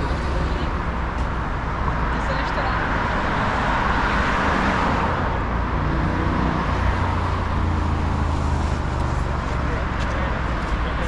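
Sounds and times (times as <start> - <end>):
heavy vehicle engine drone: 0.0 - 3.8
road traffic: 0.0 - 11.0.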